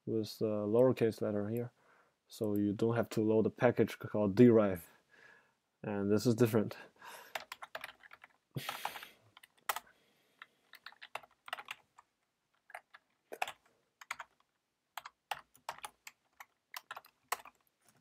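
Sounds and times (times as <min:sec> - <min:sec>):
computer keyboard typing: 0:07.3 - 0:18.0.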